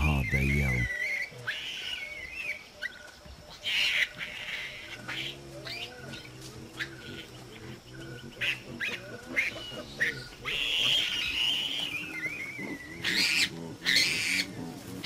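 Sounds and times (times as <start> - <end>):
adult baboons calling: 0.0 - 15.0
young baboon squealing: 8.5 - 14.5.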